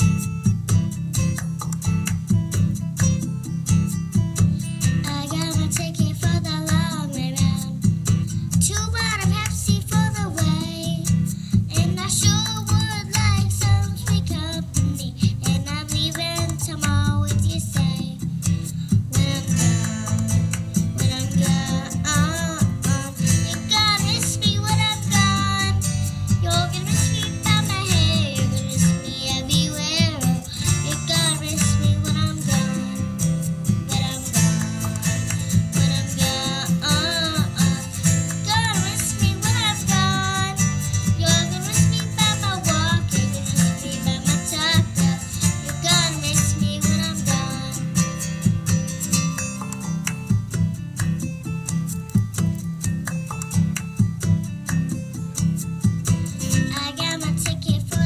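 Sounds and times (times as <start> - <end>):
plucked guitar accompaniment: 0.0 - 58.0
girl singing into microphone: 4.9 - 48.4, 56.5 - 58.0.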